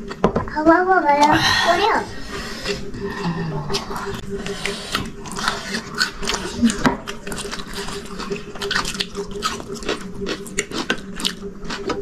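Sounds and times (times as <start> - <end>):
slurping noodles: 1.2 - 10.7
wet chewing: 3.7 - 12.0.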